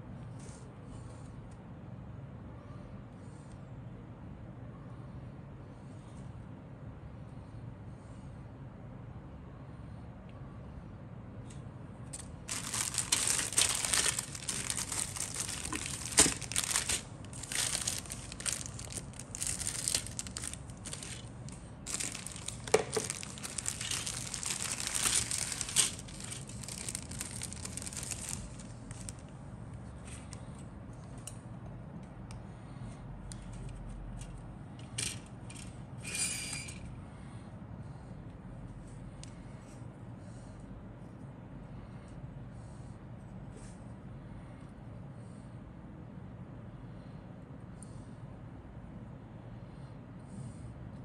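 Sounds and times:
plastic packaging crinkling: 12.2s - 29.3s.

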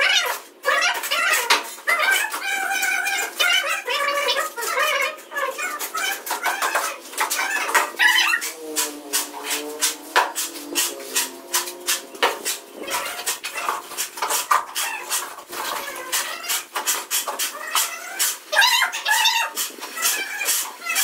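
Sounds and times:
trowel scraping wet cement: 0.0s - 21.0s.

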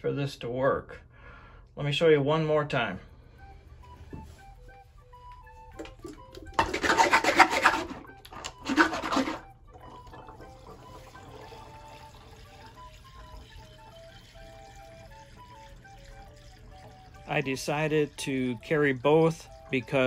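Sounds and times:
faint background music: 1.7s - 20.0s
water sloshing in plastic bottle: 5.7s - 13.4s.

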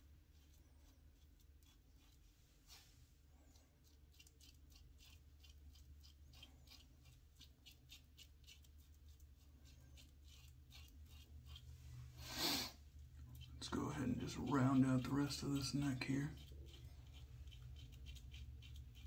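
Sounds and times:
razor scraping stubble: 0.3s - 19.0s.

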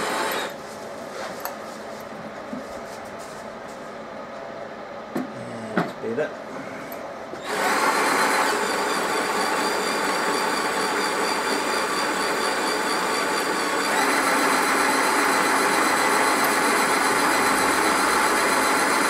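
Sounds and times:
cordless drill motor running: 0.0s - 0.6s, 7.4s - 19.0s
grain mill rollers crushing grain: 7.4s - 19.0s.

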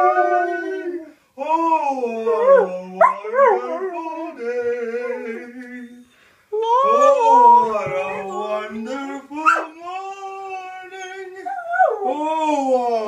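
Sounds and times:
dog howling: 0.0s - 1.1s, 2.2s - 4.0s, 4.9s - 5.5s, 6.6s - 8.5s, 10.9s - 12.3s.

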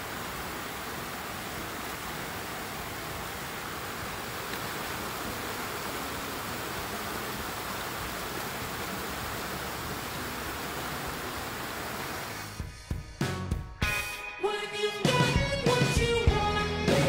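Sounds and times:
stream rushing over rocks: 0.0s - 12.6s.

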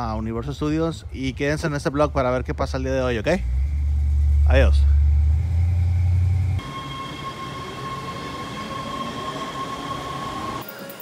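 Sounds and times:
loud low hum: 2.0s - 6.8s
subway train whine and rumble: 3.3s - 11.0s.

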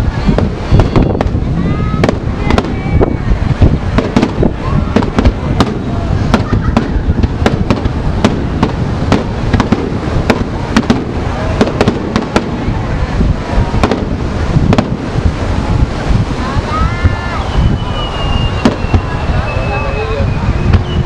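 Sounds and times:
low rumble: 0.0s - 21.0s
firework shells bursting: 3.9s - 12.7s.

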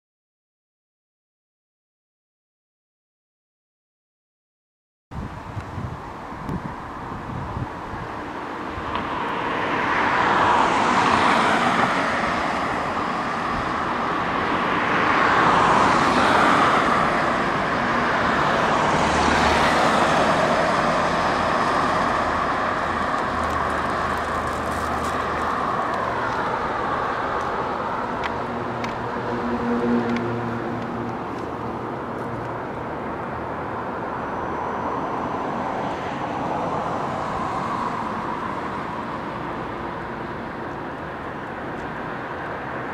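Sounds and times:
cars passing: 5.2s - 42.9s
vehicle engine humming: 5.3s - 35.6s.

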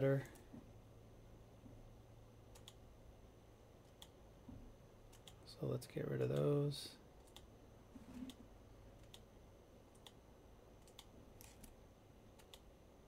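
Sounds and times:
computer mouse clicks: 2.5s - 2.8s, 3.9s - 4.2s, 5.1s - 5.4s, 7.2s - 8.4s, 9.0s - 9.3s, 9.9s - 10.2s, 10.8s - 12.7s.

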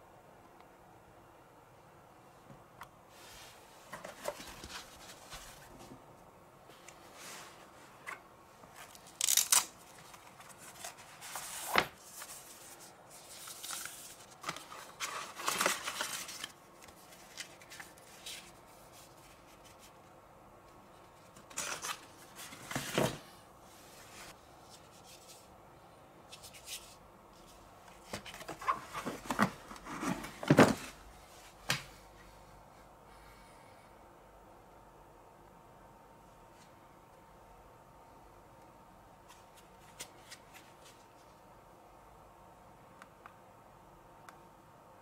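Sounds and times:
paper leaflets rustling: 8.7s - 19.8s.

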